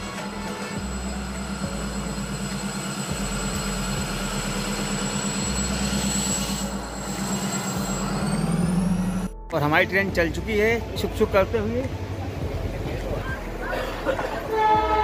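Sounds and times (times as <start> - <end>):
high whine: 0.0 - 9.6
diesel locomotive engine drone: 0.0 - 15.0.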